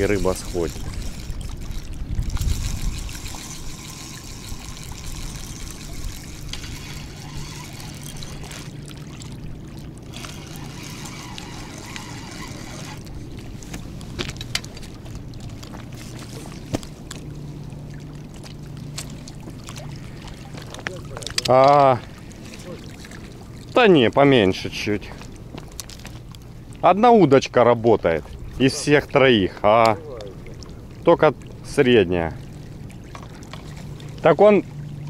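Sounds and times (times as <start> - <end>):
fishing reel winding: 0.0 - 1.6, 2.3 - 8.7, 10.1 - 13.0.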